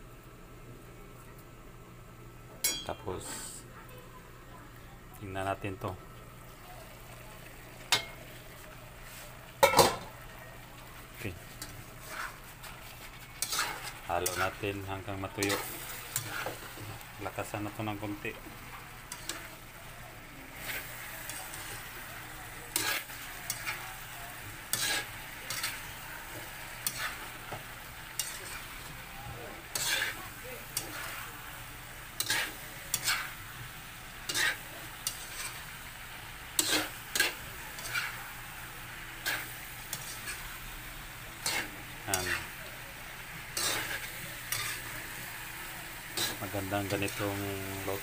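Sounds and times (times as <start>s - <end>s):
meat sizzling in a wok: 5.2s - 48.0s
spatula scraping pan: 11.5s - 17.6s, 18.7s - 19.6s, 20.6s - 22.0s, 22.7s - 28.9s, 29.6s - 31.4s, 32.0s - 33.5s, 34.2s - 35.7s, 36.4s - 38.3s, 39.2s - 40.6s, 41.4s - 42.6s, 43.5s - 48.0s.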